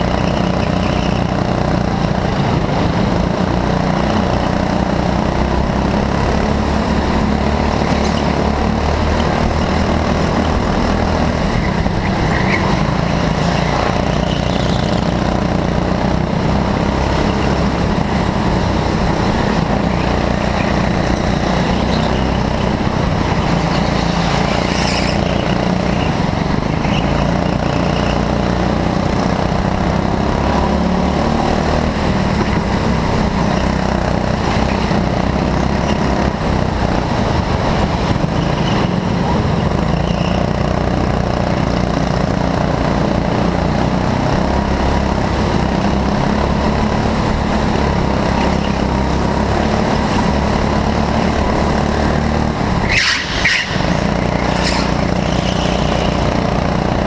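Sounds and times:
go-kart engine running: 0:00.0 - 0:57.0
other kart engines: 0:00.0 - 0:57.0
high-pitched squeal: 0:19.8 - 0:28.3, 0:52.8 - 0:56.6.

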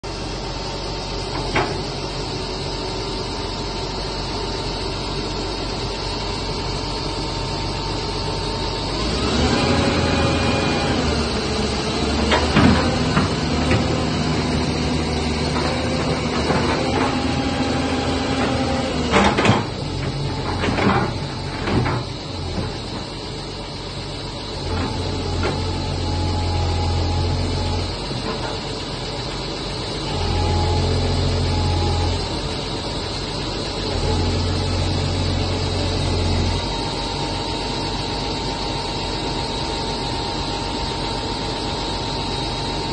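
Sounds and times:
excavator diesel engine running: 0:00.0 - 0:42.9
hydraulic whine: 0:00.0 - 0:42.9.

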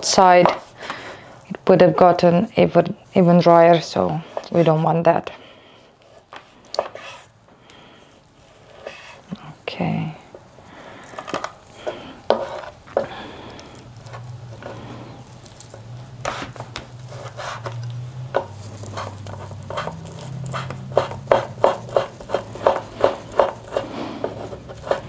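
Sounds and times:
low steady hum: 0:00.0 - 0:25.0
knife chopping on wooden board: 0:17.2 - 0:25.0.

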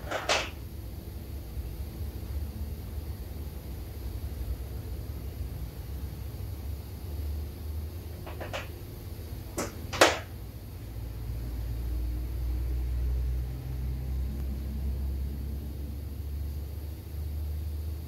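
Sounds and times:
metal parts knocking: 0:00.0 - 0:00.6, 0:08.2 - 0:08.7
low workshop rumble: 0:00.0 - 0:18.0.

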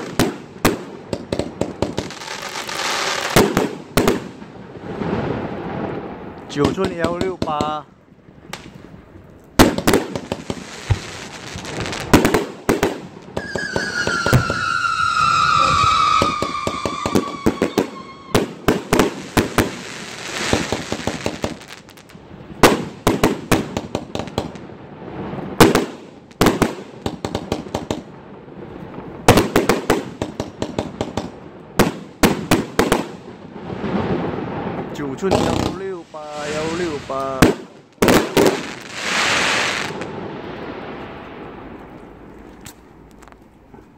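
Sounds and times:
firework launch thuds and bursts: 0:11.8 - 0:14.8
firework whistle falling in pitch: 0:13.4 - 0:18.4.

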